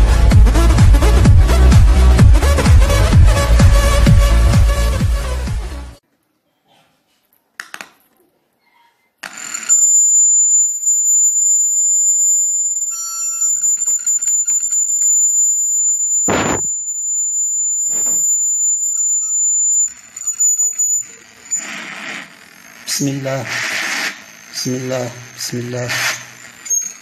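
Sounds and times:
high-pitched feedback whistle: 9.6s - 21.9s, 23.5s - 27.0s.

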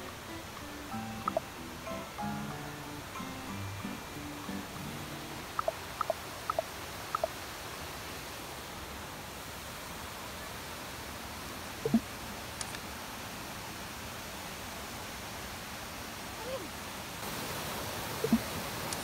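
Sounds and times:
waterfall and stream rushing: 0.0s - 19.0s
two-note chirps: 0.3s - 5.7s.

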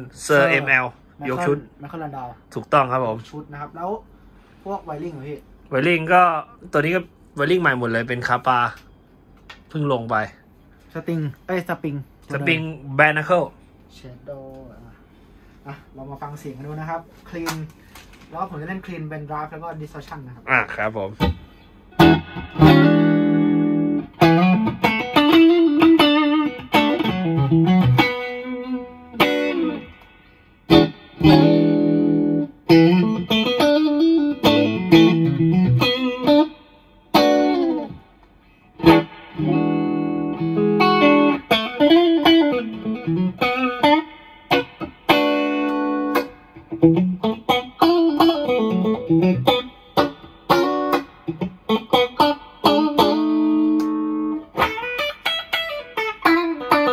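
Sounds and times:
clean electric guitar: 21.2s - 56.9s.

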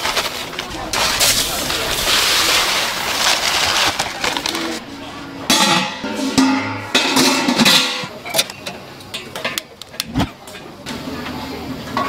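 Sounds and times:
rice pouring into pot: 0.0s - 4.8s
metal lid clanking: 5.5s - 10.3s.

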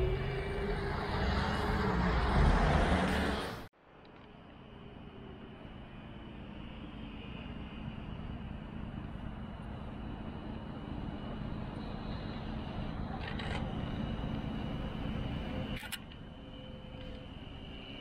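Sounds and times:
tram rumbling: 0.0s - 18.0s.

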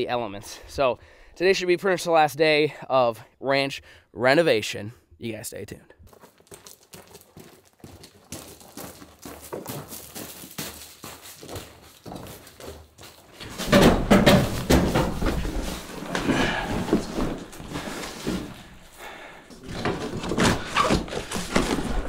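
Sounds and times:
footsteps on gravel: 6.0s - 13.7s
cardboard bumping and scraping: 13.4s - 18.9s, 19.5s - 22.0s.

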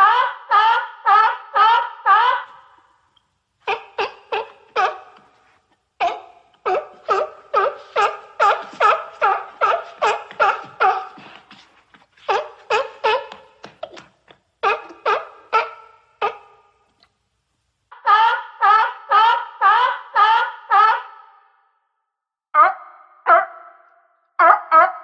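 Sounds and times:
seal barking: 3.6s - 5.3s, 6.0s - 11.5s, 12.3s - 13.6s, 14.6s - 16.6s.

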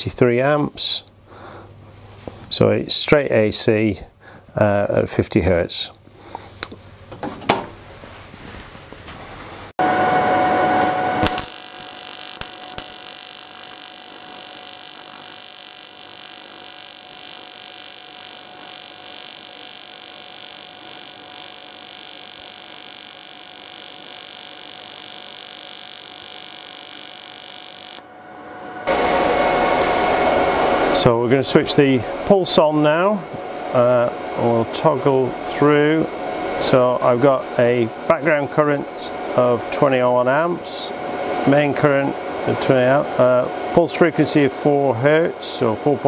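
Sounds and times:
welding arc buzzing: 10.6s - 28.1s.

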